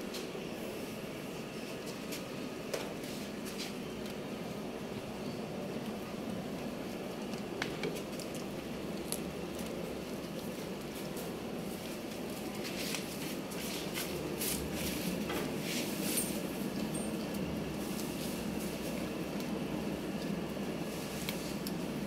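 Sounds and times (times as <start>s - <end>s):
steady low hum: 0.0s - 22.0s
goat chewing and tearing leaves: 6.0s - 22.0s
leaves crackling and rustling: 17.6s - 22.0s.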